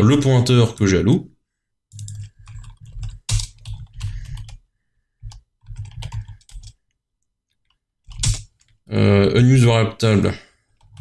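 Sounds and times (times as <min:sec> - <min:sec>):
typing on computer keyboard: 0:01.9 - 0:04.6, 0:05.2 - 0:06.9, 0:07.6 - 0:08.8.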